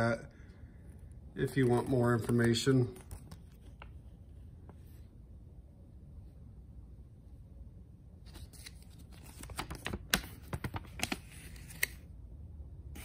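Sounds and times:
paper rustling and crackling: 8.3 - 12.0.

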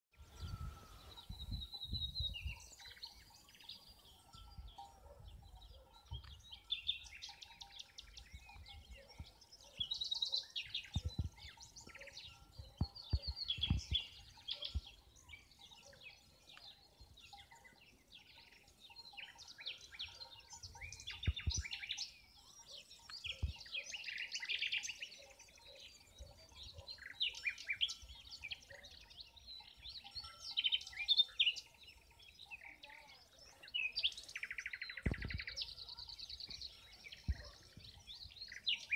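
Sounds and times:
songbirds chirping and trilling: 0.1 - 38.9
low thump on microphone: 10.9 - 11.5, 12.8 - 14.1, 35.0 - 35.6.

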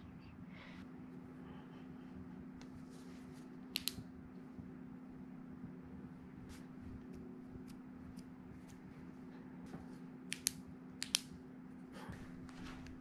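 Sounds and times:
steady low hum: 0.0 - 13.0
light clicks: 3.7 - 4.0, 10.3 - 11.4.

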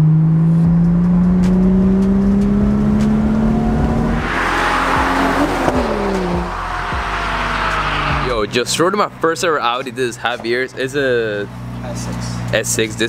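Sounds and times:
car passing close by: 0.0 - 8.8
car engine accelerating: 0.0 - 13.0.

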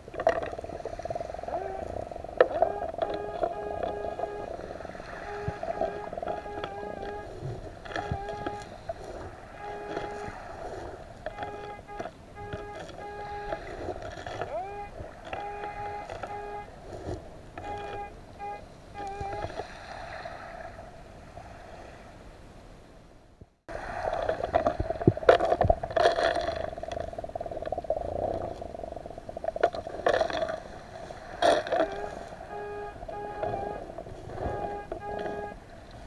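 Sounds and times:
underwater hiss and hum: 0.0 - 22.6, 23.7 - 36.0
clicks and crackles of pebbles: 5.1 - 18.0, 23.7 - 32.4.

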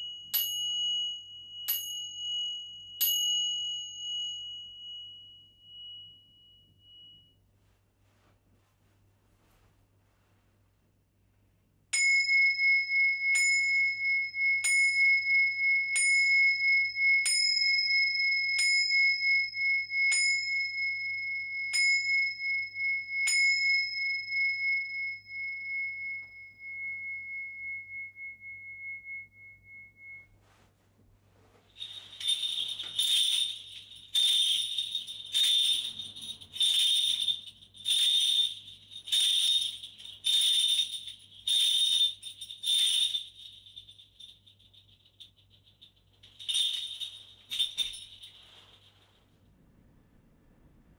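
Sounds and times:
bell tree jingling: 0.0 - 7.3, 31.7 - 49.2
small cymbals ringing: 0.0 - 7.4, 11.9 - 30.6, 31.7 - 48.9.

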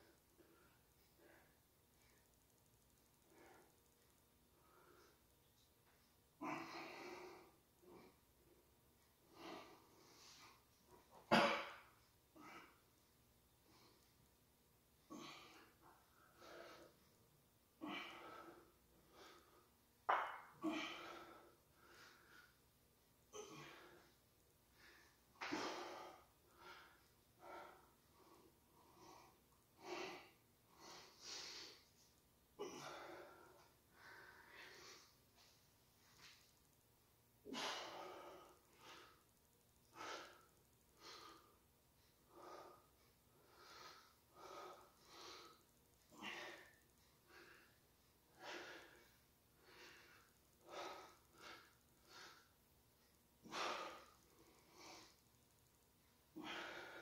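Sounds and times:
man breathing hard: 15.1 - 17.1, 17.8 - 22.6, 23.4 - 32.0, 32.6 - 35.5, 37.5 - 39.3, 39.9 - 52.6, 53.4 - 55.2, 56.4 - 57.0.

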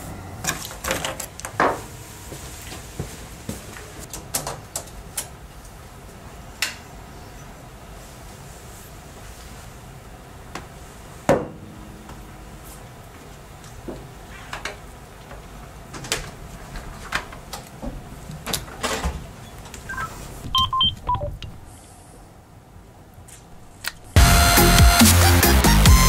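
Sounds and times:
electronic keypad beeps: 19.9 - 21.7.

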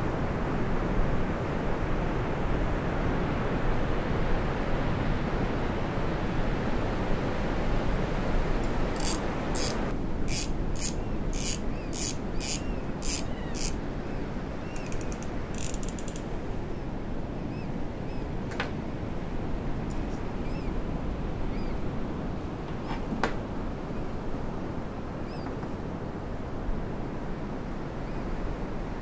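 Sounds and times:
fishing reel drag clicking: 8.6 - 13.8, 14.8 - 16.2.

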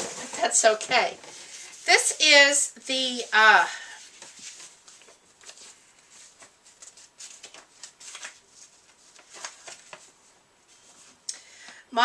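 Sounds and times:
packaging rustling and crinkling: 3.9 - 11.2.

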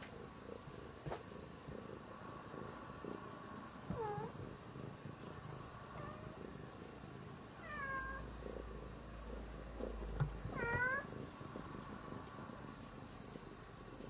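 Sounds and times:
cat meowing: 7.6 - 8.2, 10.5 - 11.1.

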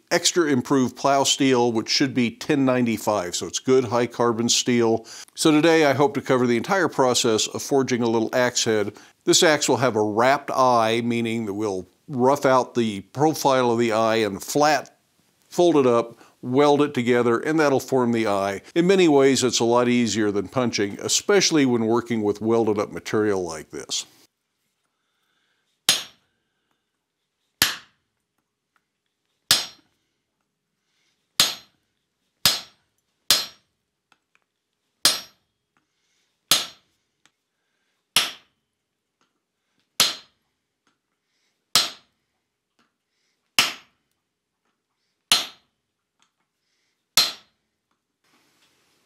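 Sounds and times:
hammer striking hot steel on anvil: 25.9 - 26.2, 27.6 - 27.9, 29.5 - 29.9, 31.4 - 31.7, 32.4 - 33.6, 35.0 - 35.4, 36.5 - 36.8, 38.2 - 38.5, 40.0 - 40.3, 41.8 - 42.0, 43.6 - 43.8, 45.3 - 45.6, 47.2 - 47.5.

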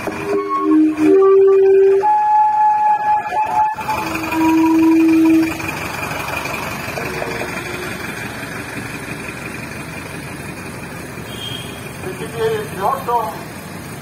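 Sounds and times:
vehicle engines rolling past: 0.0 - 14.0
loud held tone: 0.2 - 5.7.

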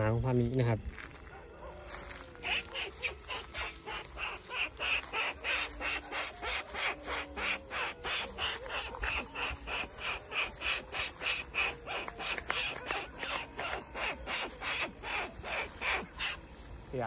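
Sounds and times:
night animal chirping: 1.2 - 17.0
steady high hiss: 2.4 - 17.0.

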